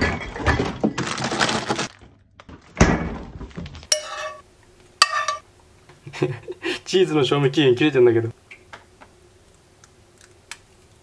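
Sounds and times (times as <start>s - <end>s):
metal spoon clinking on frying pan: 3.9s - 4.4s, 5.0s - 5.4s.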